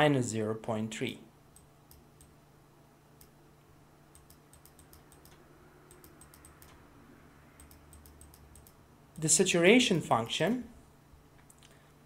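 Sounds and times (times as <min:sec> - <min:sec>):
low steady hum: 0:00.0 - 0:12.0
faint computer clicks: 0:04.1 - 0:06.8, 0:07.6 - 0:08.8.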